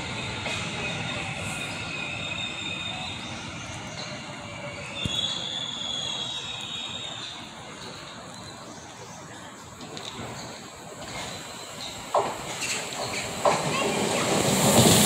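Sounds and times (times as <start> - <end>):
train wheels squealing: 0.0 - 8.8, 10.2 - 15.0
low train rumble: 0.0 - 15.0.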